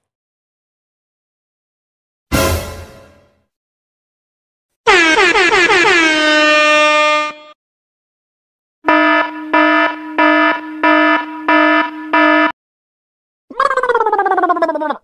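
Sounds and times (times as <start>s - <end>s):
air horn blast: 4.8s - 7.6s, 8.8s - 12.5s
short buzzing alarm beeps: 8.9s - 12.6s.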